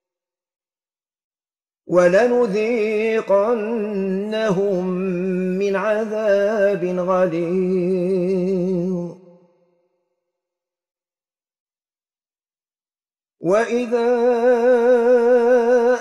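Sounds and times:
man chanting melodically: 0:01.9 - 0:09.2, 0:13.4 - 0:16.0.

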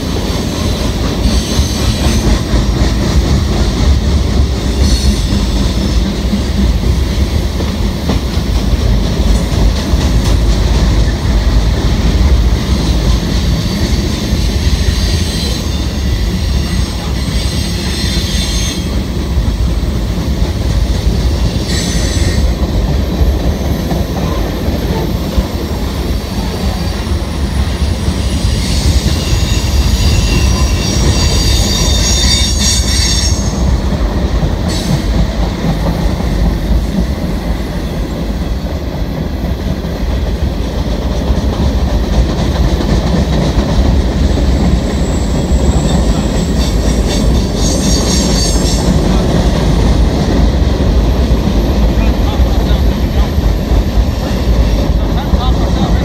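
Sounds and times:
train wheels squealing: 0:00.0 - 0:07.4, 0:12.6 - 0:22.6, 0:23.3 - 0:34.0, 0:34.6 - 0:39.2, 0:42.8 - 0:56.0
freight train rumbling on bridge: 0:00.0 - 0:56.0.

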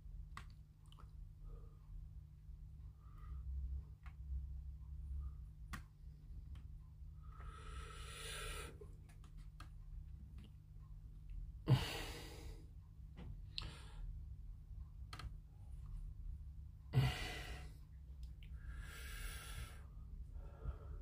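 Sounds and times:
steady low hum: 0:00.0 - 0:21.0
person exhaling heavily: 0:11.7 - 0:12.6, 0:16.9 - 0:17.7.

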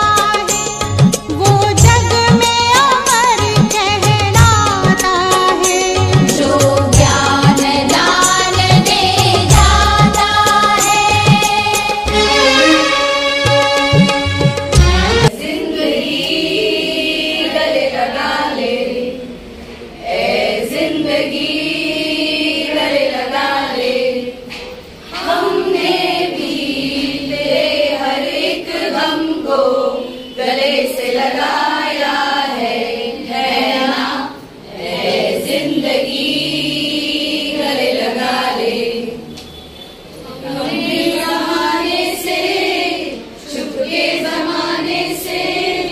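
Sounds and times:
women singing in unison: 0:01.4 - 0:12.8, 0:14.9 - 0:39.4, 0:40.2 - 0:45.9.

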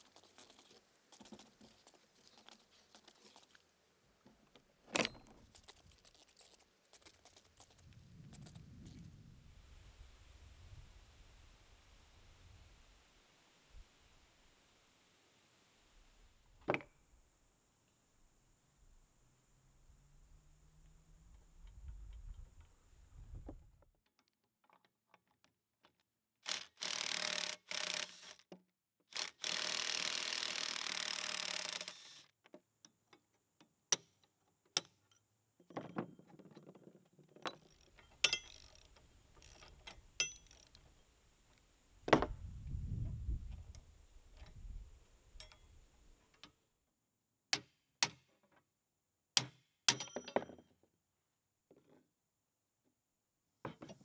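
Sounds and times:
rapid ratchet clicking: 0:26.4 - 0:28.4, 0:29.1 - 0:32.2, 0:37.6 - 0:40.8
metal clicks and clinks: 0:37.4 - 0:40.8.

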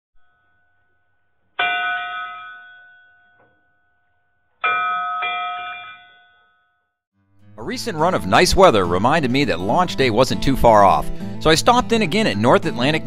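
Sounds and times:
bell ringing: 0:01.6 - 0:04.0, 0:04.6 - 0:06.9.

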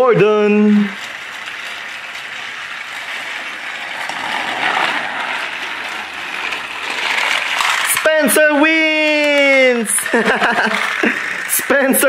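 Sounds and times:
toy train motors whirring: 0:00.0 - 0:12.0.

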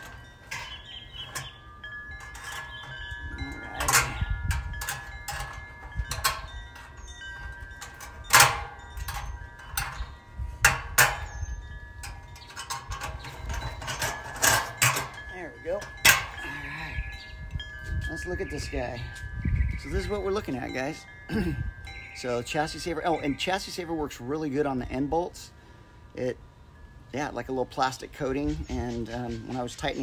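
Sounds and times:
sharp metallic clanks: 0:00.0 - 0:18.8
metal wind chimes ringing: 0:00.0 - 0:30.0.

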